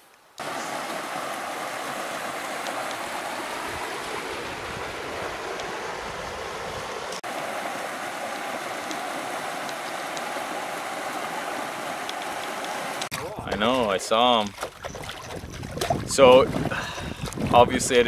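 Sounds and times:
river rapids rushing: 0.4s - 13.1s.

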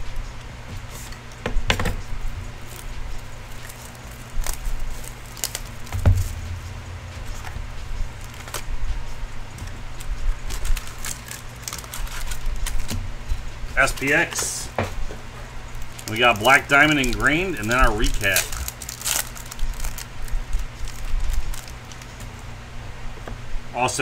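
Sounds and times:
low steady hum: 0.0s - 24.0s
plastic shrink-wrap crinkling: 2.5s - 13.0s, 15.4s - 22.4s
dull thump: 5.8s - 8.9s.

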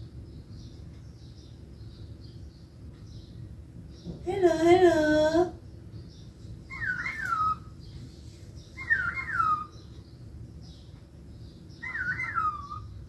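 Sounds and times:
cockatiel whistling: 6.7s - 7.7s, 8.8s - 9.7s, 11.8s - 12.9s.

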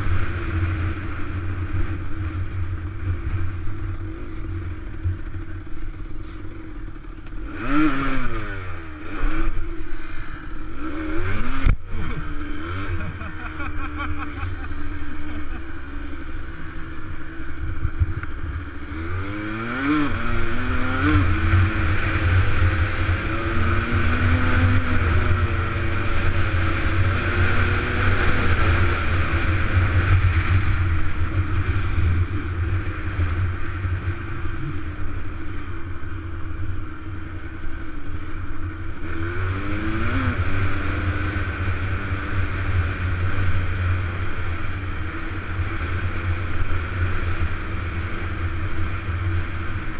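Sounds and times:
wind noise: 0.0s - 13.4s
dirt bike engine: 0.0s - 49.9s.

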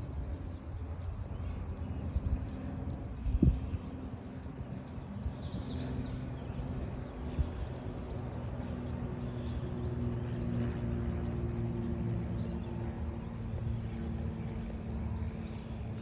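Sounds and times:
wind rumble: 0.0s - 16.0s.

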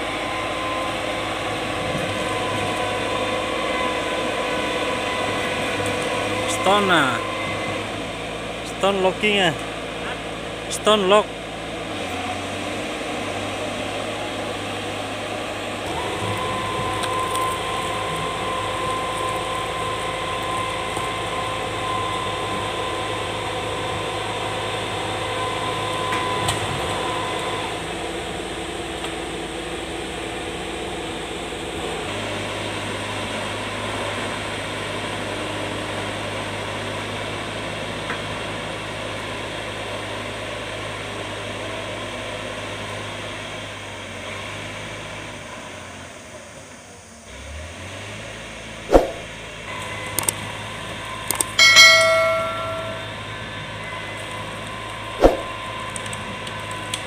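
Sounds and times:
high-pitched machine whine: 0.0s - 9.7s, 13.8s - 30.3s, 48.9s - 57.0s
diesel machinery engines running: 0.0s - 57.0s.

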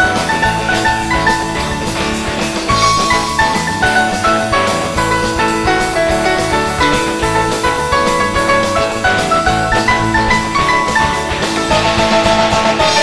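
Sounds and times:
drum kit beat: 0.0s - 13.0s
instrumental rock music: 0.0s - 13.0s
quick lead guitar notes: 0.0s - 13.0s.

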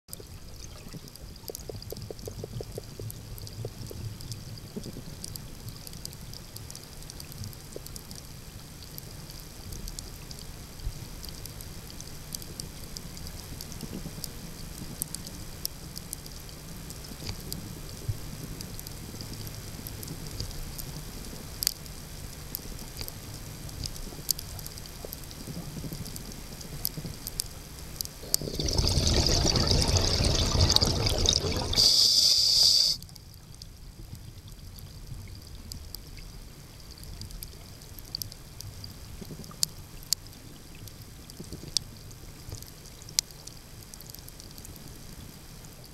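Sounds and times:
low underwater hum: 0.1s - 45.9s
scattered sharp clicks and crackles: 0.1s - 45.9s
diver's exhaled bubbles: 28.2s - 32.1s.

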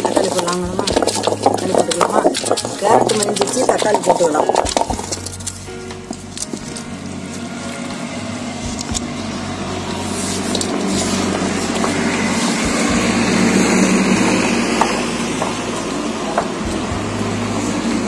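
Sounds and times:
stone pestle grinding in mortar: 0.0s - 7.9s, 8.6s - 18.0s.

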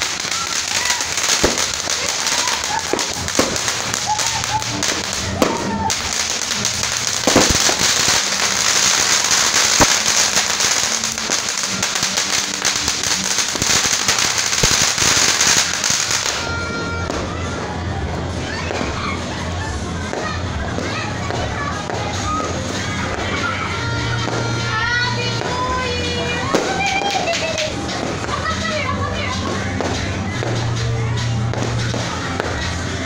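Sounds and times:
firework sharp pops: 0.0s - 17.3s
background music: 0.0s - 33.0s
firework hissing and crackling: 0.0s - 33.0s.

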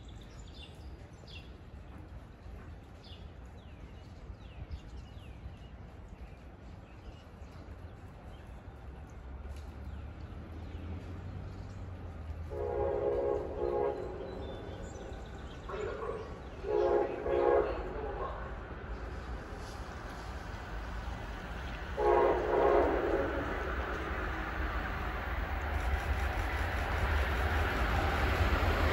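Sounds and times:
low train rumble: 0.0s - 28.9s
birds chirping faintly: 3.7s - 28.9s
train horn blast: 12.4s - 15.2s, 16.6s - 18.6s, 21.9s - 24.3s.

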